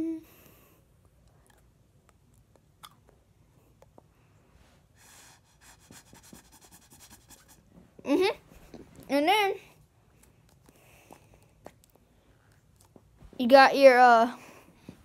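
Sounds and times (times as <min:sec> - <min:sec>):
breathing through a plastic straw: 0:04.8 - 0:07.5.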